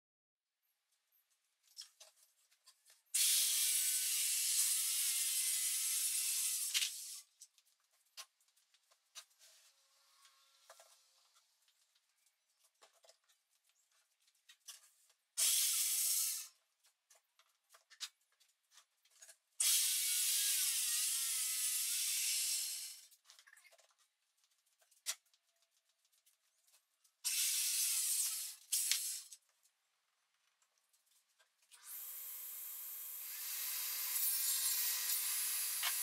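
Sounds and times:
circular saw cutting plywood: 31.8s - 36.0s.

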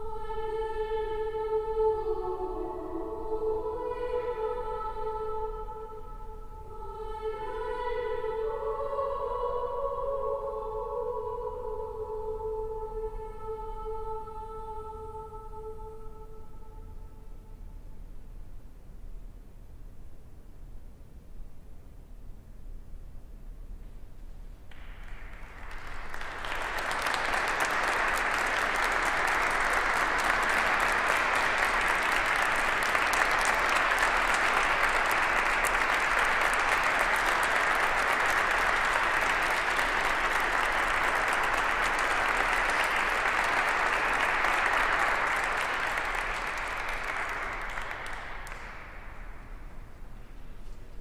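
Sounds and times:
audience applauding: 24.7s - 49.8s.

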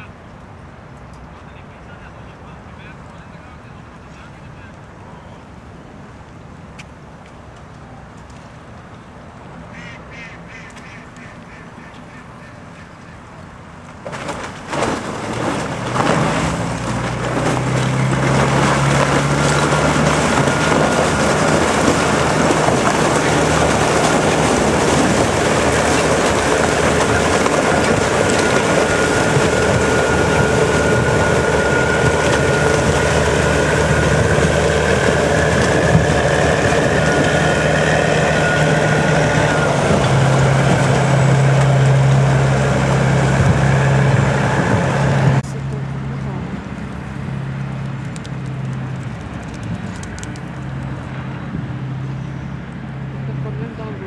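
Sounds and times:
boat engine under load: 9.6s - 54.0s
water churning with ice floes: 13.7s - 46.4s.

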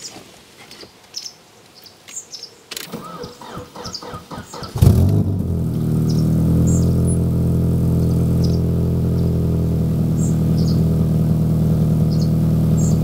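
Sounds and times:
birds chirping: 0.0s - 13.0s
engine starter cranking: 2.8s - 7.2s
engine catching with loud burst: 2.9s - 13.0s
car engine idling: 4.8s - 13.0s.

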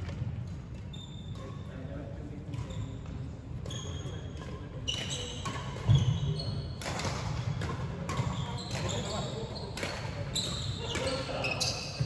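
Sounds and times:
sneakers squeaking on floor: 0.0s - 1.8s, 2.5s - 12.0s
racket hitting shuttlecock: 4.4s - 6.0s, 6.8s - 11.3s.

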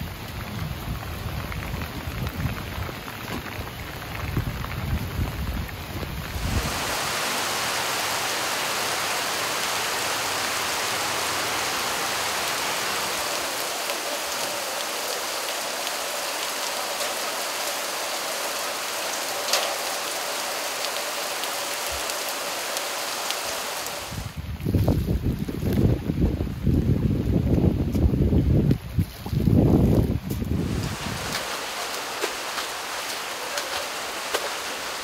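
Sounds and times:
heavy rain: 0.0s - 24.7s, 30.4s - 35.0s.

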